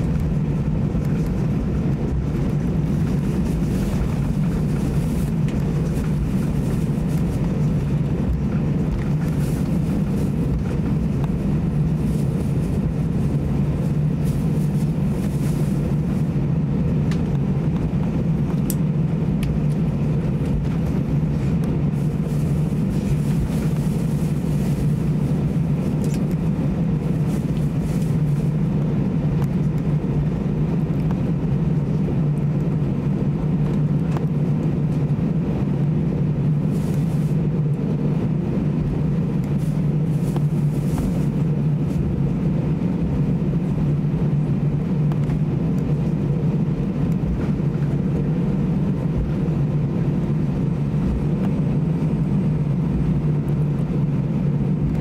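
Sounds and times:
airplane engines idling hum: 0:00.0 - 0:55.0
cabin air rush: 0:00.0 - 0:55.0.

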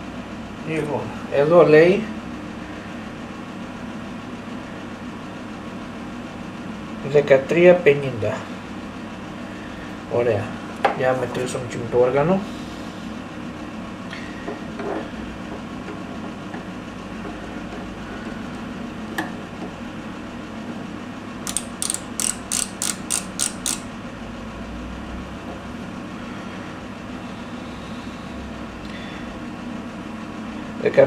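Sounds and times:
steady low hum: 0:00.0 - 0:31.0
micrometer ratchet clicking: 0:21.4 - 0:23.9.

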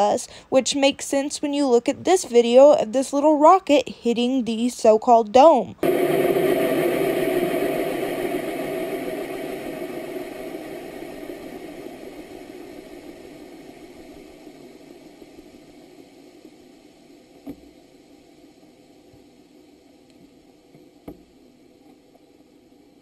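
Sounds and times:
rocket roar: 0:05.8 - 0:17.1.

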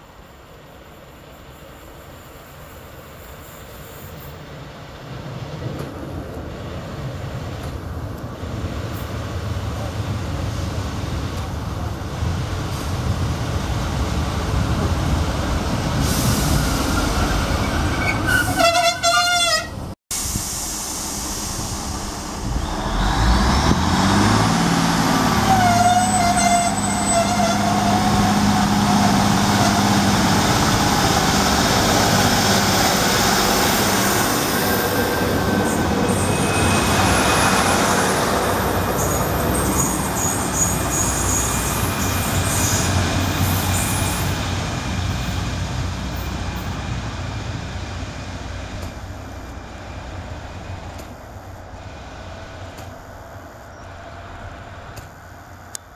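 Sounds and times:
train diesel engines revving: 0:03.3 - 0:55.9.

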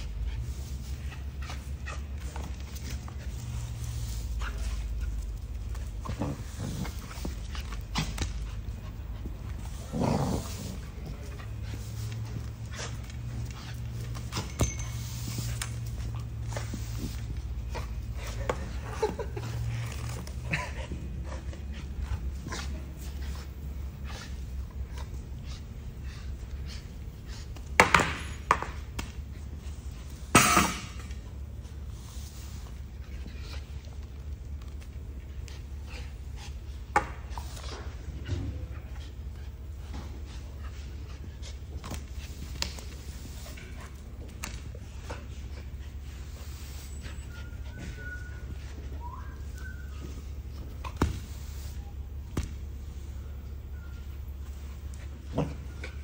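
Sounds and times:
steady low hum: 0:00.0 - 0:56.0
faint high whistle-like tones: 0:14.0 - 0:17.4, 0:40.6 - 0:56.0.

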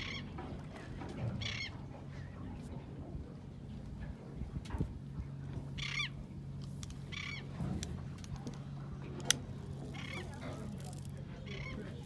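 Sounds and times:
gulls calling: 0:00.0 - 0:02.3, 0:05.7 - 0:06.3, 0:07.0 - 0:07.6, 0:09.7 - 0:12.0
boat engine hum: 0:00.0 - 0:12.0.

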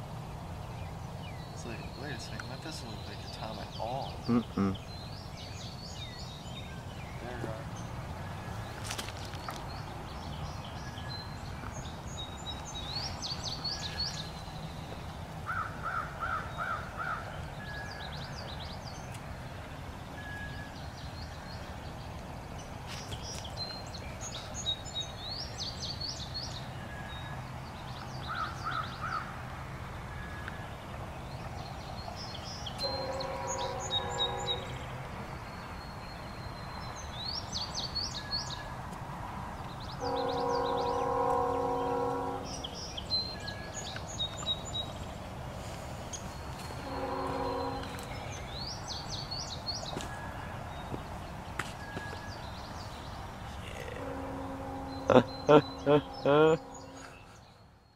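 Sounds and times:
songbirds chirping: 0:00.0 - 0:57.9
distant train horn: 0:32.8 - 0:35.3, 0:40.0 - 0:43.8, 0:46.6 - 0:48.7, 0:53.8 - 0:57.5.

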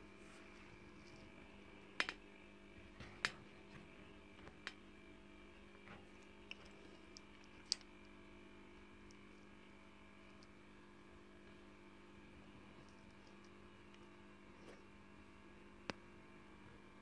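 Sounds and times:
faint electrical hum: 0:00.0 - 0:17.0
sharp clicks: 0:02.0 - 0:02.2.

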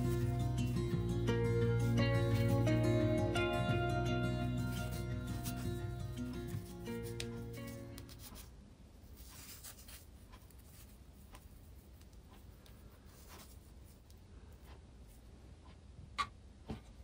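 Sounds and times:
gentle guitar music: 0:00.0 - 0:08.1.

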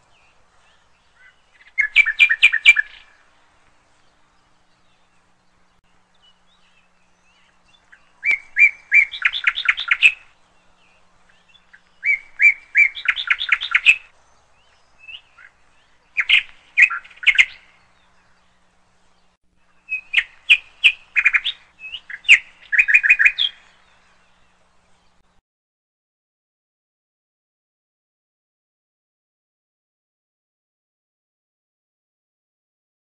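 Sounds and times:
bird singing: 0:00.0 - 0:25.4.

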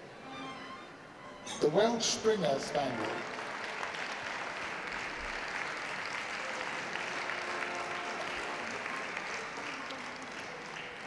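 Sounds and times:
audience clapping: 0:02.2 - 0:11.0.

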